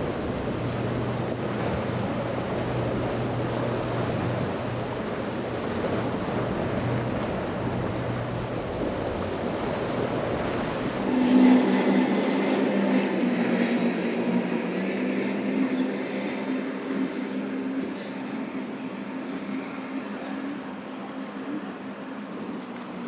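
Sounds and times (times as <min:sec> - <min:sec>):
boat engine humming: 0:00.0 - 0:23.0
surf: 0:00.0 - 0:23.0
wind: 0:00.0 - 0:23.0
high-pitched engine drone: 0:11.0 - 0:15.6.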